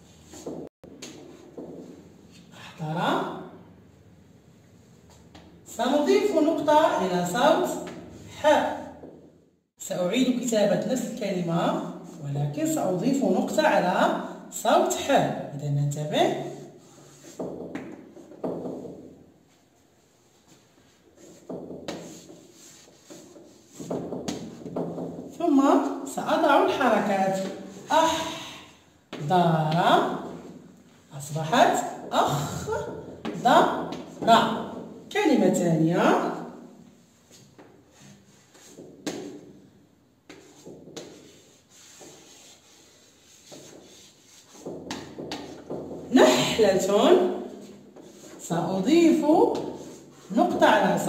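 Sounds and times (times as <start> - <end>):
chalk scraping on blackboard: 16.6 - 18.8, 20.1 - 25.2, 37.1 - 39.5, 40.3 - 46.0, 47.6 - 48.5, 49.4 - 50.7.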